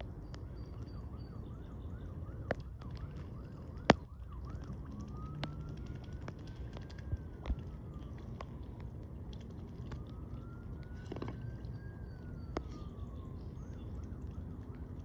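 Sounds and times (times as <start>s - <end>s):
low rumble: 0.0s - 15.0s
siren yelp and wail: 0.0s - 15.0s.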